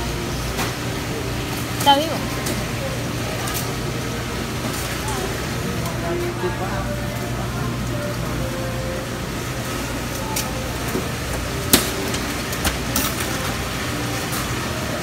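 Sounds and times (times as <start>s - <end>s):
refrigeration and ventilation hum: 0.0s - 15.0s.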